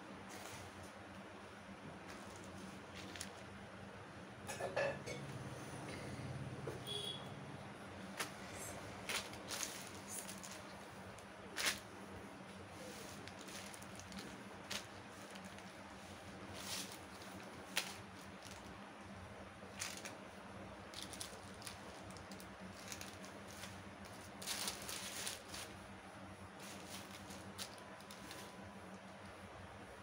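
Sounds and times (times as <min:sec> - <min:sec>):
steady low hum: 0:00.0 - 0:30.0
fabric rustling: 0:02.0 - 0:03.6, 0:08.0 - 0:29.0
plastic packet crinkling: 0:02.1 - 0:03.6, 0:09.0 - 0:11.9, 0:12.8 - 0:18.9, 0:19.6 - 0:25.8, 0:26.6 - 0:28.8.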